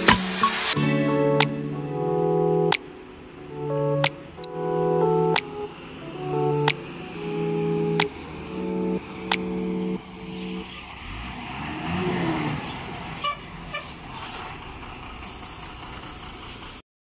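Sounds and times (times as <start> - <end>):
steady held tones: 0.0 - 10.7
clicks: 2.7 - 3.0, 4.0 - 4.6, 5.3 - 5.7, 7.9 - 10.0
diesel truck engine passing: 3.0 - 16.8.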